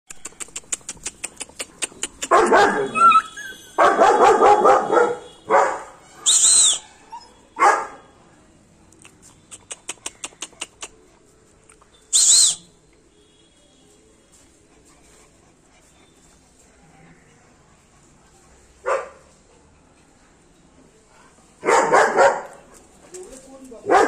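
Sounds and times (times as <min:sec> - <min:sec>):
quick clicking: 0:00.1 - 0:02.4
puppies barking and yelping: 0:00.2 - 0:05.1.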